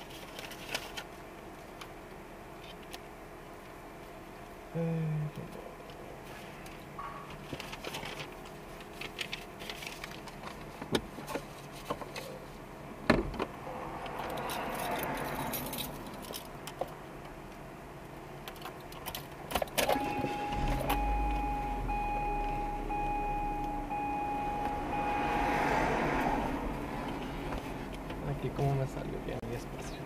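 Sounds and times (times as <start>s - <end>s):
keys jingling: 14.3s - 16.5s
electronic chime: 20.0s - 25.5s.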